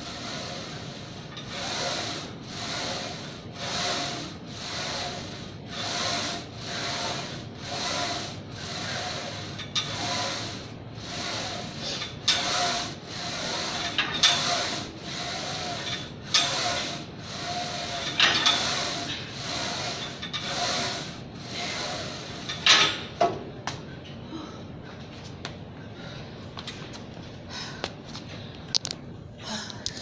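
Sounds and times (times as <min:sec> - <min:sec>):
exercise machine rasping rub: 0:00.0 - 0:23.4
exercise machine clanks: 0:00.2 - 0:23.4.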